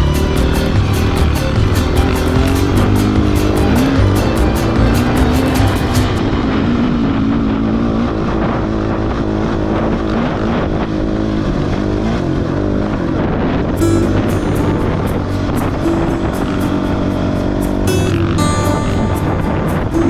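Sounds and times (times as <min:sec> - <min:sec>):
music track: 0:00.0 - 0:07.2, 0:13.8 - 0:20.0
motorcycle engine running: 0:00.0 - 0:20.0.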